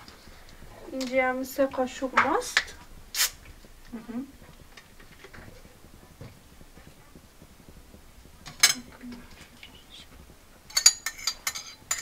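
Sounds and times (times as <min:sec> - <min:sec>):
spoon clinking against glass bowl: 0:10.7 - 0:12.0.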